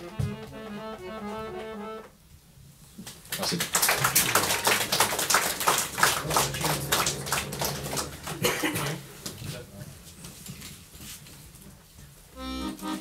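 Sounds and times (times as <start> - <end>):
held music notes: 0.0 - 2.1, 6.0 - 9.2, 12.4 - 13.0
small audience applauding: 3.0 - 9.0.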